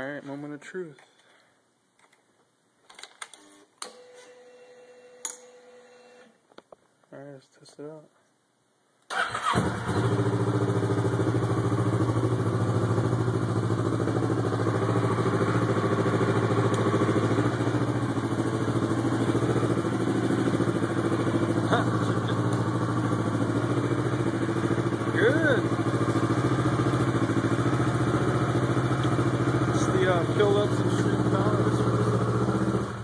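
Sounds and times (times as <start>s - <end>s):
motorcycle engine starting and idling: 9.1s - 33.0s.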